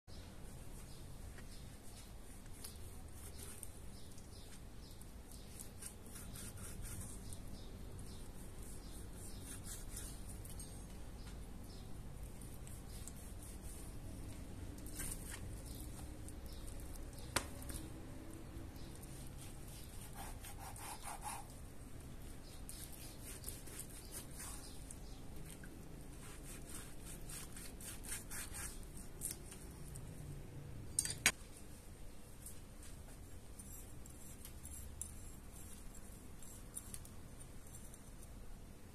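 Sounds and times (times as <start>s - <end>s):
knife cutting meat on board: 19.0s - 21.5s.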